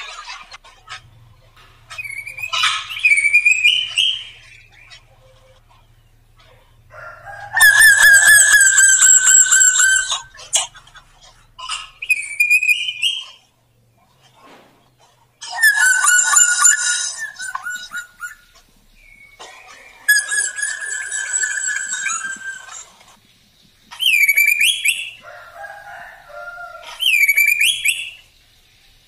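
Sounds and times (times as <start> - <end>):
bird calling with wavering tone: 0.0 - 14.1, 15.3 - 23.2, 23.9 - 29.0.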